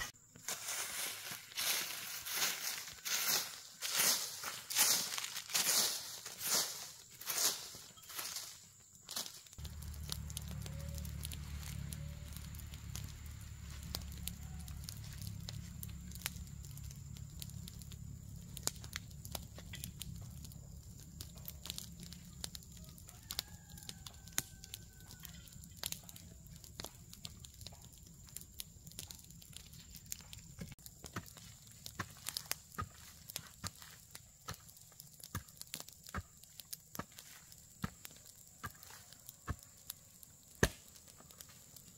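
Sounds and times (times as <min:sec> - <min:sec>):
steady low rumble: 0:09.6 - 0:22.7
hoe chopping and scraping dirt: 0:30.6 - 0:39.9, 0:40.5 - 0:41.6.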